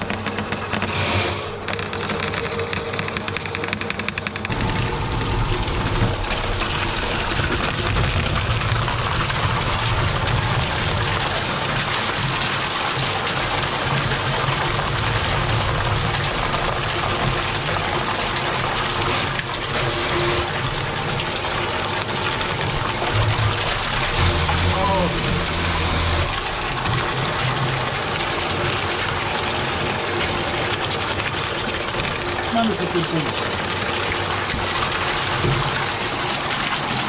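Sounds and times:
drain-cleaning machine hum: 0.0s - 37.0s
water splashing into plastic tub: 4.5s - 19.8s.

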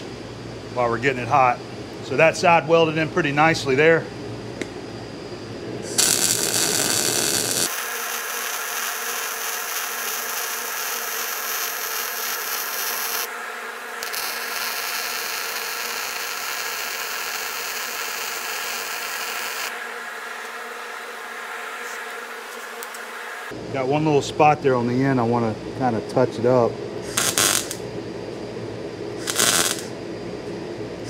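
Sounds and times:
welder arc crackling and buzzing: 4.6s - 24.2s, 26.5s - 30.4s.

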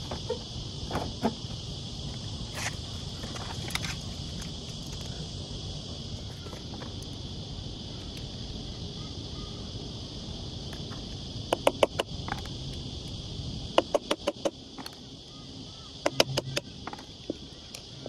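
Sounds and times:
steady high hiss: 0.0s - 18.0s
fan motor clicks and knocks: 13.7s - 15.0s, 16.0s - 17.9s.

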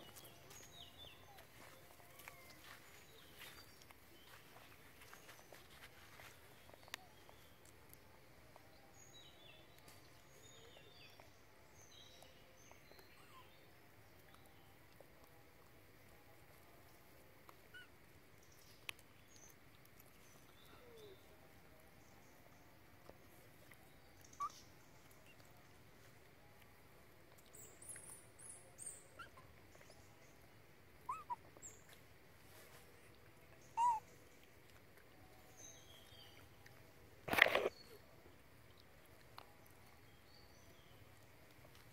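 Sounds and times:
monkeys squeaking: 31.1s - 31.4s, 33.8s - 34.0s
distant birds chirping: 33.6s - 34.3s.

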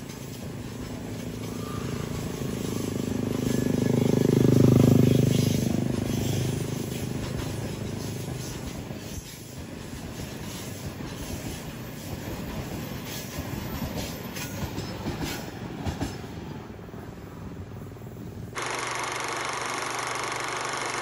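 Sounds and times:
wheels clacking on rail joints: 0.0s - 16.5s
train wheels rumbling on rails: 0.0s - 18.6s.

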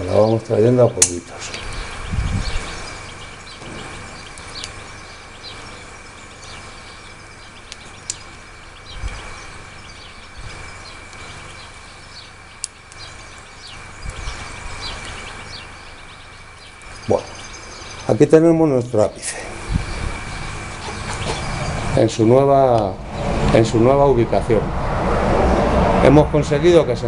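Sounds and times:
small birds chirping: 0.0s - 24.4s
low bumps: 19.5s - 27.0s.

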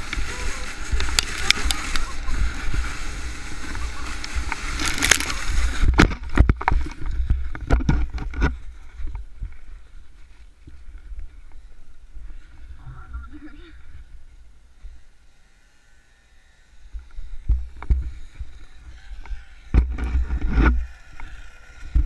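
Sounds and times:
sled scraping over snow: 0.0s - 11.7s.

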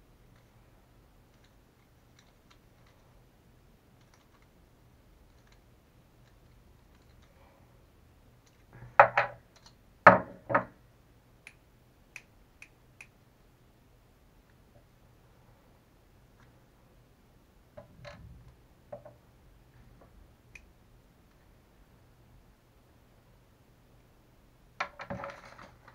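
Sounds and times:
faint clicks of small parts: 1.3s - 3.2s, 4.0s - 4.6s, 5.2s - 7.6s, 8.4s - 8.8s, 9.4s - 9.8s
loud knocks: 10.1s - 10.7s
light sharp ticks: 11.4s - 13.2s.

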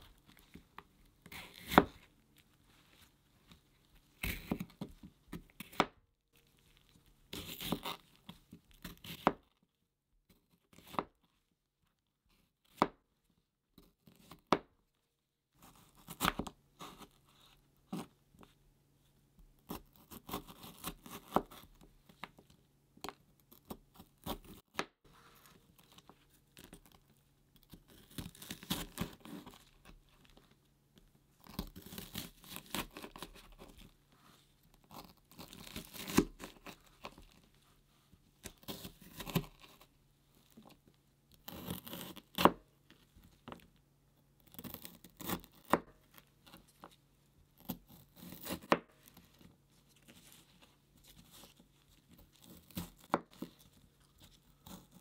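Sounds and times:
knife slicing bell pepper: 1.3s - 2.0s, 34.9s - 37.1s, 41.5s - 42.6s, 47.6s - 48.9s.

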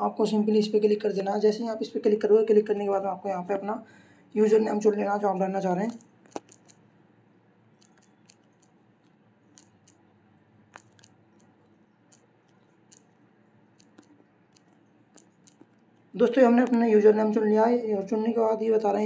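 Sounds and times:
touchscreen typing taps: 5.9s - 6.8s, 7.8s - 10.0s, 10.7s - 13.2s, 13.8s - 15.8s.

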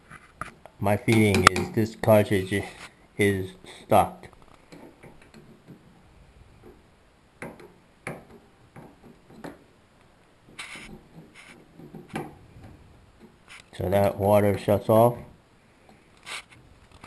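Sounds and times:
metal tool scraping: 10.5s - 12.2s.

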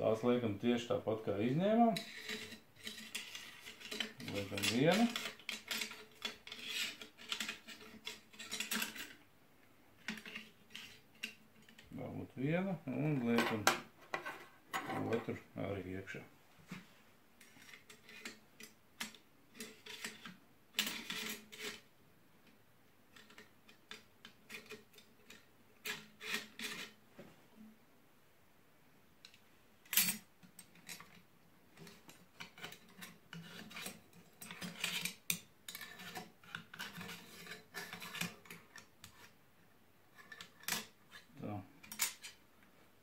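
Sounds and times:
metal parts scraping and rubbing: 1.7s - 9.2s, 10.0s - 11.9s, 13.1s - 15.4s, 17.4s - 21.9s, 23.1s - 27.0s, 31.8s - 39.4s, 40.1s - 42.4s.

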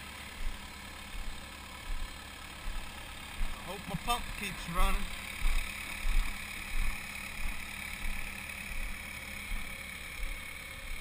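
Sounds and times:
machinery engine running: 0.0s - 11.0s
footsteps on gravel: 5.1s - 8.9s.

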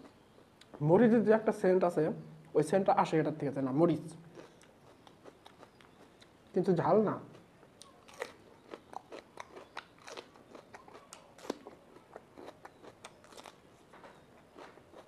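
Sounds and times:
mouth chewing crisp pepper: 4.2s - 6.6s, 7.2s - 15.0s.

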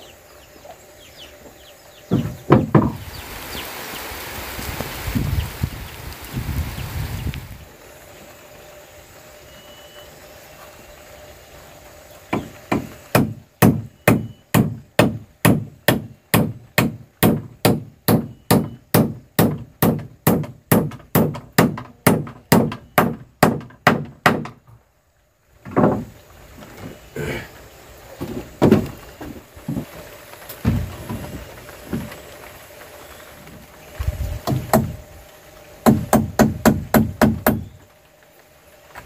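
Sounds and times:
hammer hitting nail into wood: 12.4s - 24.6s, 35.8s - 37.6s.

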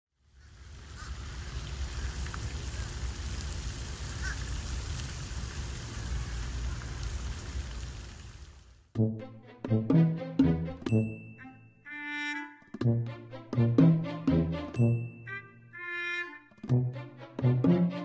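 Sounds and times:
fountains spraying and splashing: 0.2s - 8.9s.

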